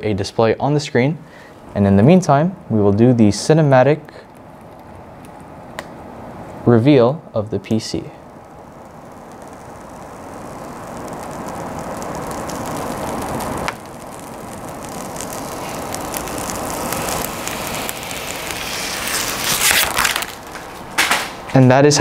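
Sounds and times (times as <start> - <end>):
plastic film peeling crackle: 4.0 - 6.0, 7.7 - 21.6.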